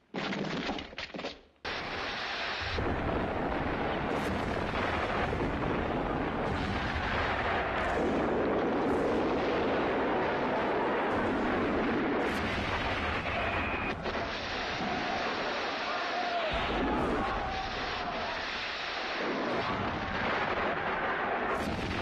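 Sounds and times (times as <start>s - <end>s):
artillery fire and explosions: 1.6s - 22.0s.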